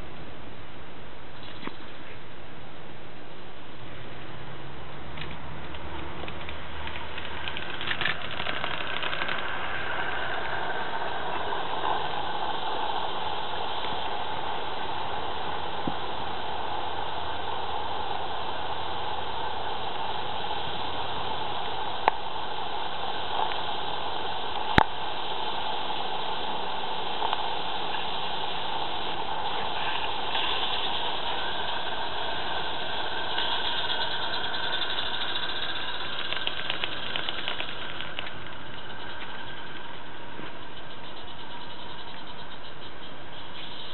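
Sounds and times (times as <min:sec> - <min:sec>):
sharp clicks: 0:05.2 - 0:10.6, 0:33.2 - 0:41.3
steam locomotive hissing: 0:06.5 - 0:43.9.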